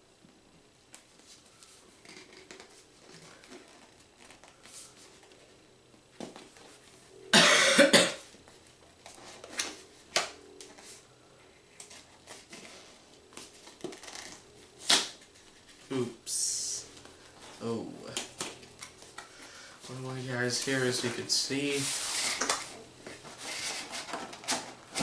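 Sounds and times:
person coughing: 7.3s - 8.2s.

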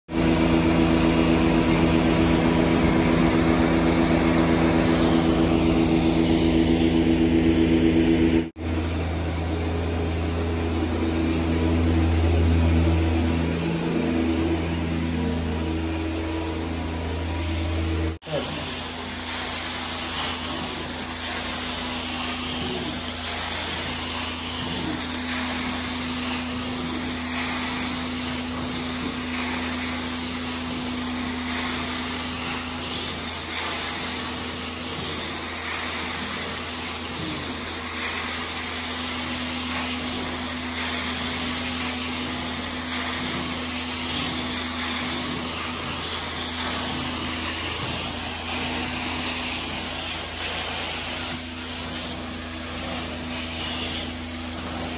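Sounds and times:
vacuum suction noise: 9.4s - 54.9s
hot-water spray hissing: 18.2s - 54.9s.

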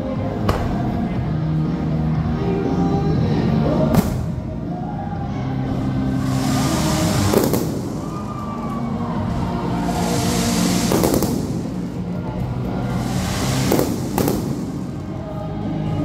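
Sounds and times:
fireworks bangs: 6.2s - 15.3s.

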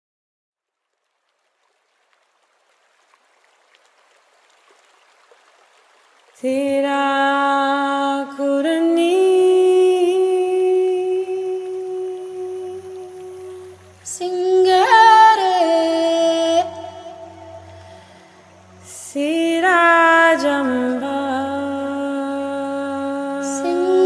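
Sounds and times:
hummed choral chord: 7.4s - 24.0s.

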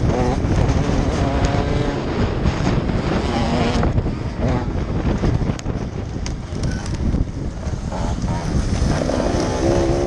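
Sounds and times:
wind noise on microphone: 0.0s - 10.0s
motocross bike engine: 7.5s - 10.0s.

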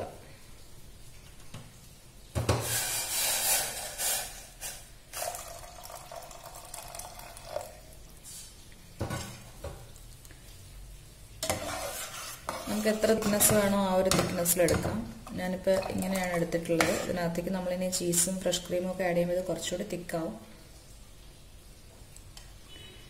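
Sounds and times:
water pouring into a pot: 2.6s - 19.8s
spoon stirring in a pot: 11.4s - 18.7s.

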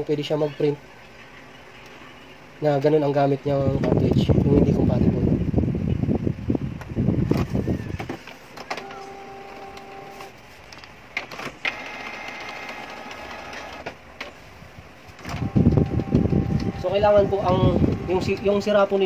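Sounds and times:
printer motor whining: 7.3s - 10.3s, 11.2s - 14.0s, 15.2s - 19.0s
printer high whirring: 7.3s - 10.4s, 11.2s - 14.0s, 15.2s - 19.0s
printer sharp clicks: 11.2s - 14.3s.

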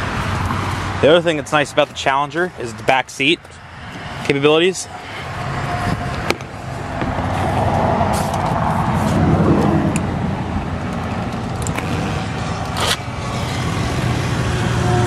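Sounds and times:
electric seat motor humming: 11.7s - 12.7s.

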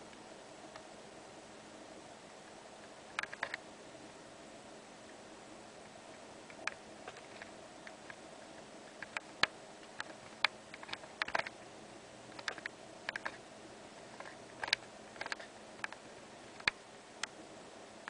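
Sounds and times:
faint steady hum: 0.0s - 18.0s
sharp clicks and light taps: 2.8s - 3.6s, 8.9s - 11.6s, 12.3s - 13.4s, 14.2s - 17.4s.

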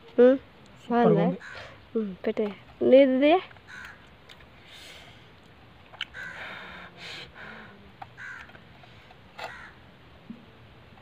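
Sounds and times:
crows cawing: 1.3s - 1.8s, 3.6s - 4.1s, 6.0s - 6.8s, 8.2s - 8.6s, 9.4s - 9.8s.

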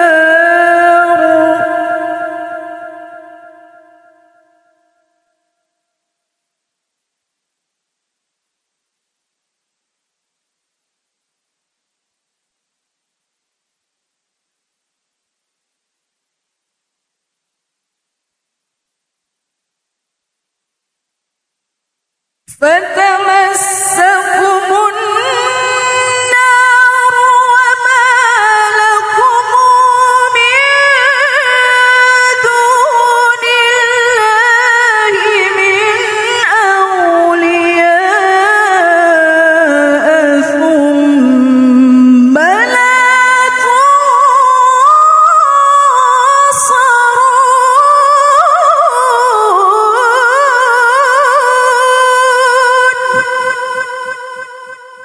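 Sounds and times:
woman reciting melodically: 0.0s - 4.4s, 22.5s - 55.0s.

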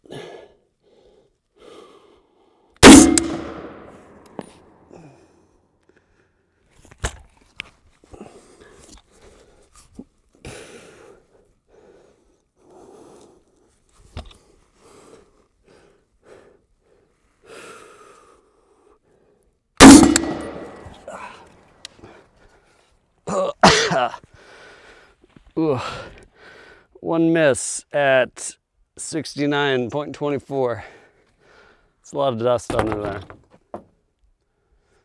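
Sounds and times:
person breathing hard: 0.0s - 2.8s, 4.8s - 6.6s, 8.1s - 9.7s, 10.4s - 13.7s, 14.3s - 19.6s, 20.8s - 22.8s, 24.2s - 27.0s, 30.9s - 32.0s
rifle shots: 2.8s - 4.4s, 19.8s - 21.1s
steel target ringing clang: 2.8s - 4.6s, 19.8s - 21.1s.

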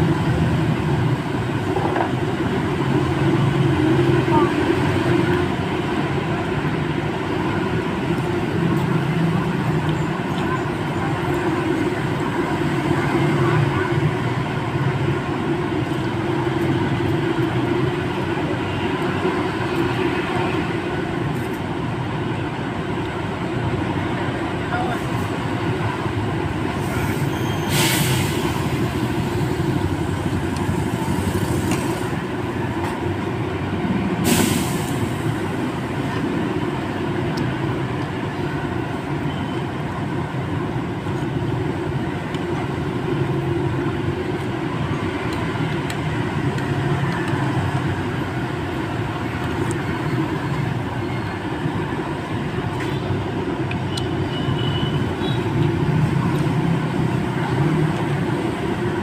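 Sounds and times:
street traffic: 0.0s - 59.0s
air release hisses: 26.8s - 29.4s, 34.2s - 35.3s.

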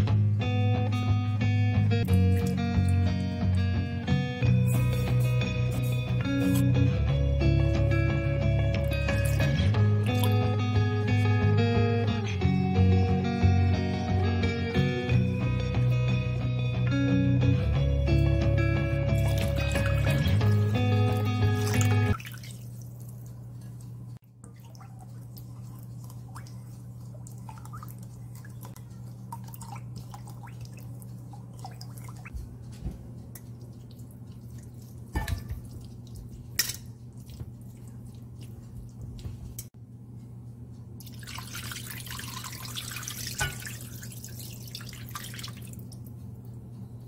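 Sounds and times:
sauce pouring into pot: 41.0s - 45.7s.

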